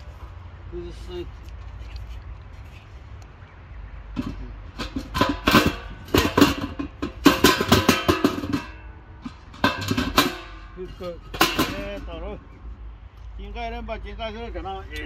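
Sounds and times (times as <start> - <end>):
metal keg halves clanking: 4.1 - 12.5.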